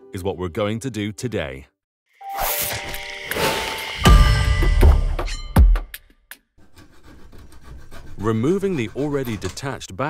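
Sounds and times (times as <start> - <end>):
logo music with ringing tones: 2.2 - 5.9
deep ringing boom: 4.0 - 5.8.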